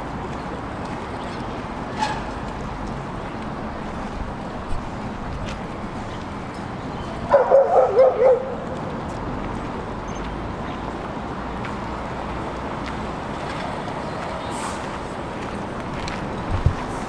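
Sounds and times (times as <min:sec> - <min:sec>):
steady background noise: 0:00.0 - 0:17.0
dog barking: 0:07.3 - 0:08.6.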